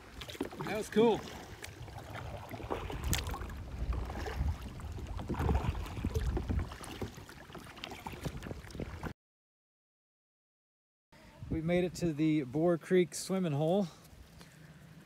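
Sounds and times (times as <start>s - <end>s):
water splashing and dripping: 0.0s - 9.1s
wind rumble on microphone: 1.4s - 9.1s, 11.3s - 12.2s.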